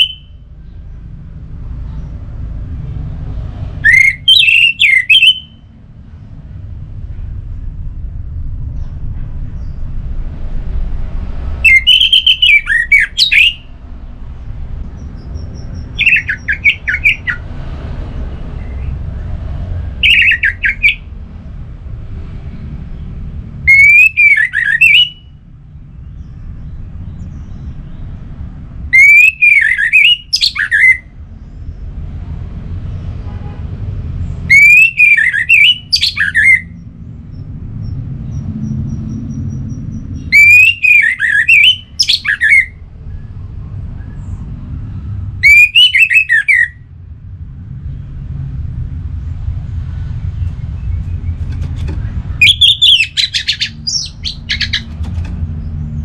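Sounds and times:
thrush singing whistled notes: 0.0 - 0.6, 3.8 - 5.8, 11.6 - 13.8, 14.9 - 17.5, 20.0 - 21.1, 23.7 - 25.4, 28.9 - 31.1, 34.4 - 43.4, 45.4 - 46.9, 52.0 - 54.9.

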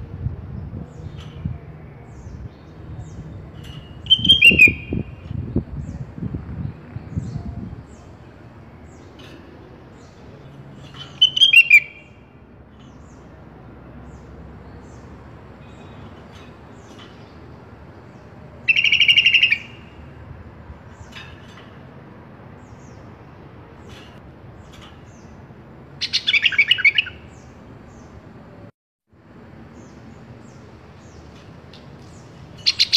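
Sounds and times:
harsh rapid rattling bird call: 3.1 - 6.0, 8.8 - 13.4, 14.1 - 20.2, 20.8 - 28.1, 29.8 - 32.9.

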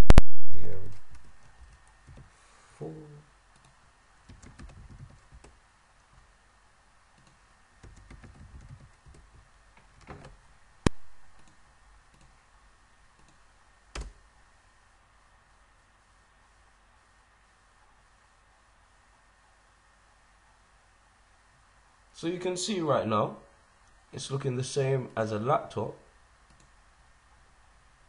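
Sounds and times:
keyboard typing: 0.9 - 2.3, 3.5 - 6.2, 7.2 - 10.3, 10.9 - 12.4.

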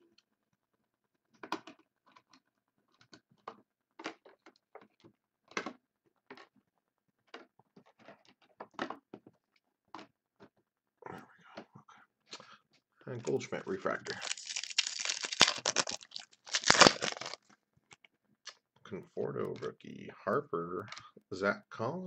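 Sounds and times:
trading cards flipped by hand: 14.1 - 17.4.

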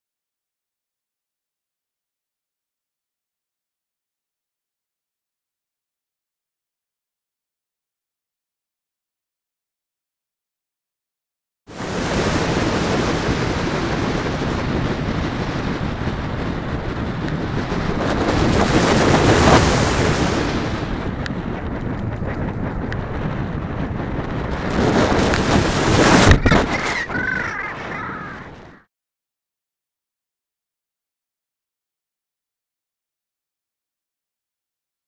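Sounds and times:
wind rushing over microphone: 11.7 - 28.9
short bird calls: 26.4 - 28.8.

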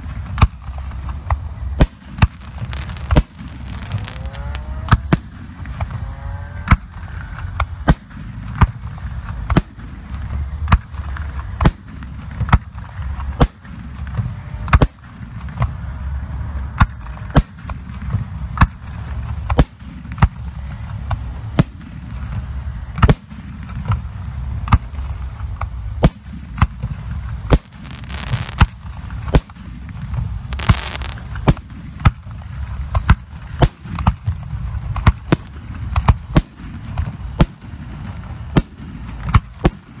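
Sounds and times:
firework shells booming: 0.0 - 15.9, 16.8 - 40.0
continuous low rumble: 0.0 - 40.0
firework hissing: 1.9 - 4.6, 27.0 - 31.9.

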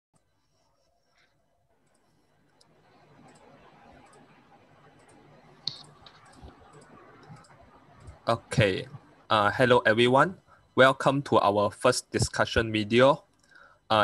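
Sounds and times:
faint clicks: 1.1 - 8.2
background hiss: 2.0 - 14.0.

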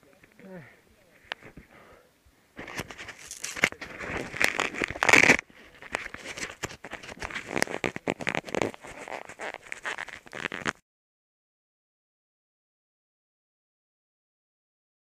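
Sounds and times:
fingers handling a camera: 2.6 - 10.8.

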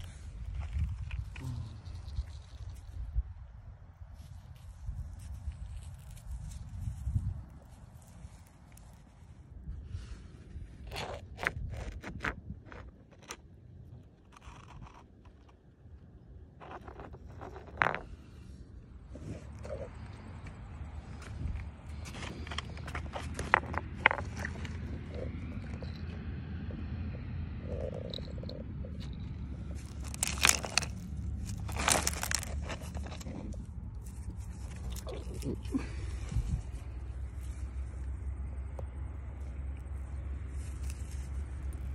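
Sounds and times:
low steady rumble: 0.0 - 41.9
stone scraping and clicking: 10.8 - 15.7, 16.6 - 18.5, 27.6 - 35.6
river stones crunching and clattering: 16.5 - 18.5, 21.0 - 26.8, 27.6 - 37.9.

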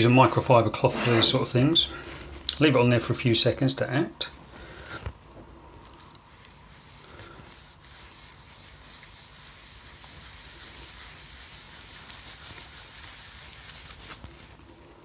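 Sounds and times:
cloth rubbing on plastic casing: 6.3 - 14.7.

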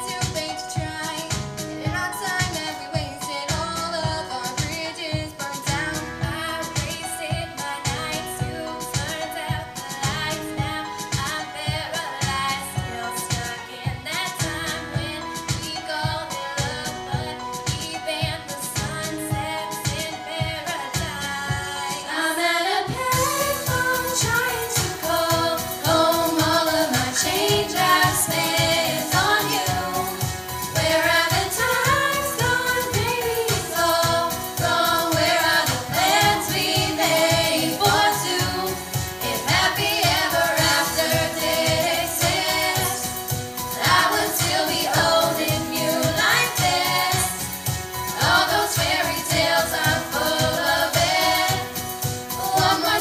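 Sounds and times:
women singing pop song: 0.0 - 53.0
low beat: 23.0 - 53.0.

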